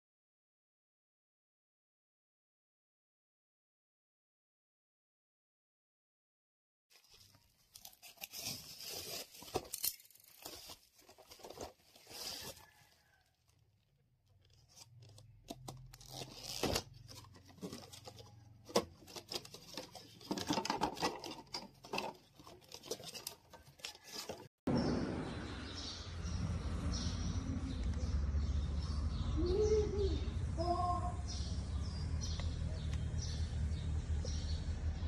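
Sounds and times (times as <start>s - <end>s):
plastic packaging tearing and crinkling: 6.9s - 13.1s, 14.4s - 24.5s.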